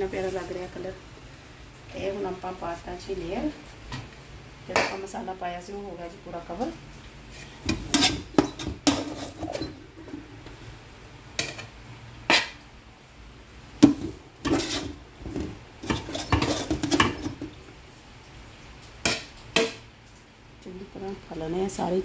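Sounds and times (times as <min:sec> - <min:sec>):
plate scraping and knocking on pot: 0:07.4 - 0:10.3, 0:12.3 - 0:12.6, 0:13.8 - 0:17.5.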